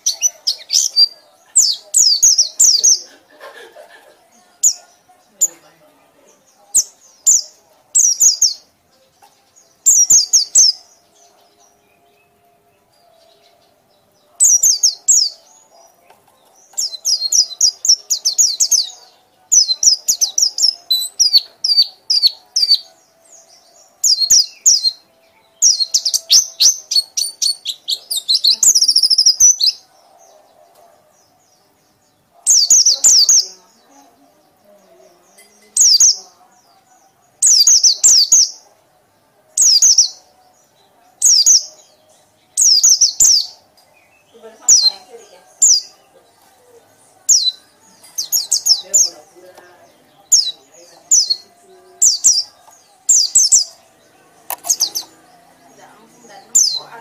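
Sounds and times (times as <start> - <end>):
songbird chattering calls: 25.6 - 29.8.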